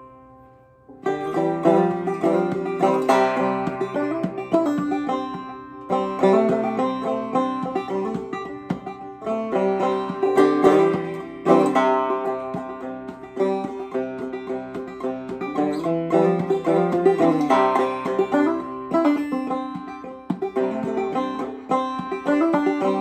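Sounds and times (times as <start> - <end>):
banjo picking: 0.0 - 23.0.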